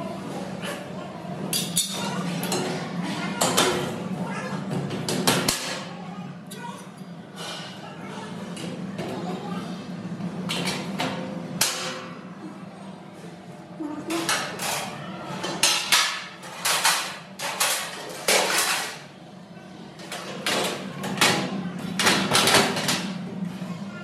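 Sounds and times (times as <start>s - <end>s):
metal shelving parts clanking: 0.3s - 6.0s, 14.0s - 19.2s, 19.9s - 23.7s.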